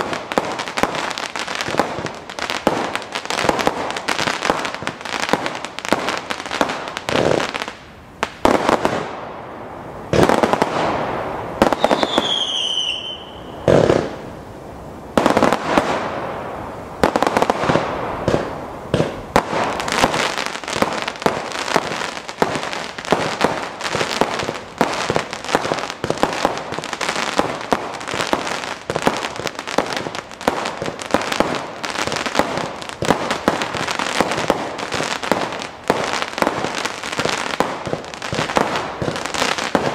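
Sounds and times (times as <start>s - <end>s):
firework shots bursting: 10.1s - 14.2s, 17.0s - 39.9s
falling firework whistle: 11.6s - 14.2s.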